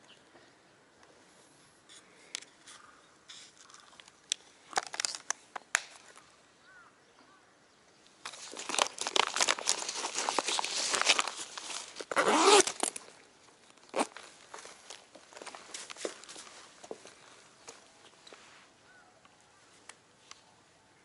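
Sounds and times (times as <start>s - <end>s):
dense crinkling rustle: 2.6s - 6.2s, 8.2s - 18.7s
plastic box clicks and rustles: 8.2s - 13.1s.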